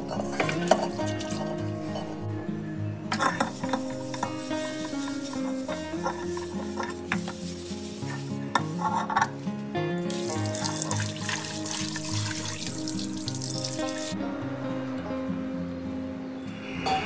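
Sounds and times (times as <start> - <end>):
background music: 0.0 - 17.0
pot scrubbing clinks and knocks: 3.1 - 7.3
tap water splashing into pot: 10.2 - 13.0.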